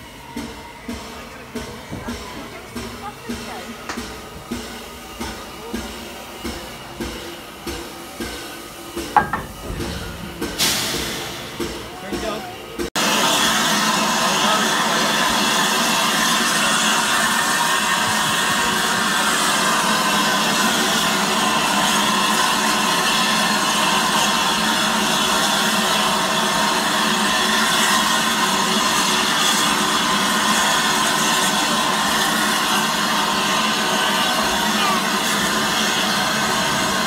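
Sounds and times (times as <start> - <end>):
steam hissing from locomotive: 0.0 - 37.0.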